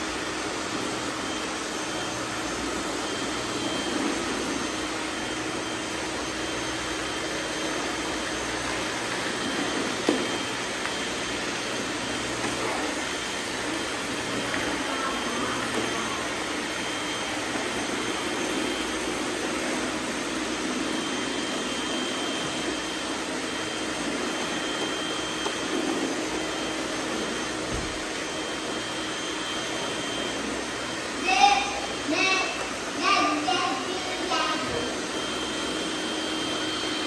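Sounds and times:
robot vacuums whirring: 0.0s - 37.0s
thin high whine: 31.2s - 35.4s.

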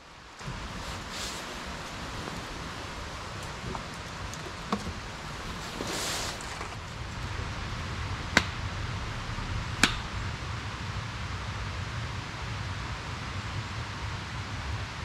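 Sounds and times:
steady outdoor hiss: 0.0s - 15.0s.

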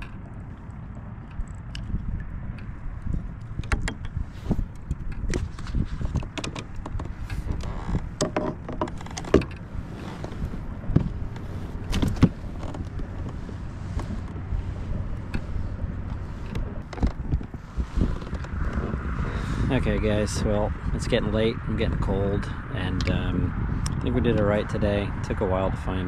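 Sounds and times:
fishing gear knocking and clattering: 0.0s - 19.1s
wind buffeting microphone: 0.0s - 26.0s.

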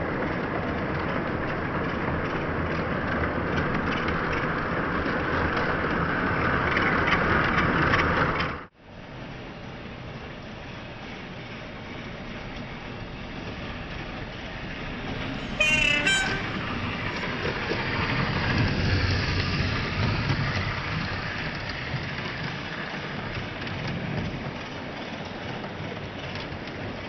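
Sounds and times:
model train rumbling on track: 0.0s - 27.0s
short train horn blasts: 15.2s - 17.2s.

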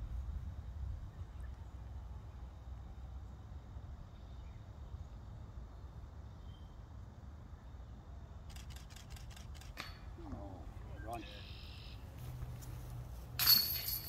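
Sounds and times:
sharp clicks: 8.5s - 9.9s.

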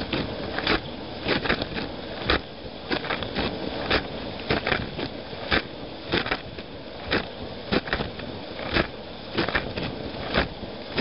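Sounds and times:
splashes and knocks: 0.0s - 11.0s.

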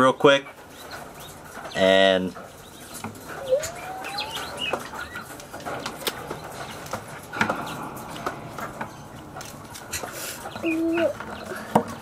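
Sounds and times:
faint fowl chirping: 2.6s - 5.3s
bird rising call: 3.4s - 4.8s.

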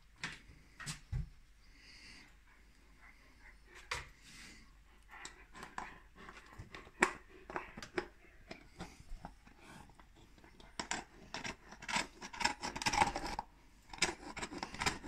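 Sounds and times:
dog gnawing a bone: 5.0s - 15.0s.

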